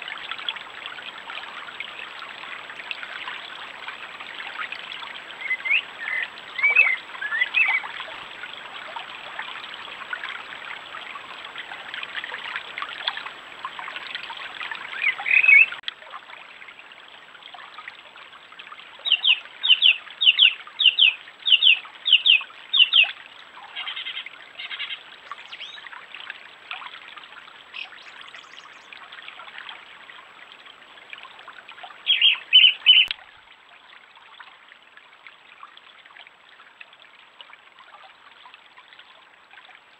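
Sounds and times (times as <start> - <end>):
stream trickling over stones: 0.0 - 39.9
birds calling: 5.4 - 7.9, 23.8 - 25.8, 32.1 - 33.1.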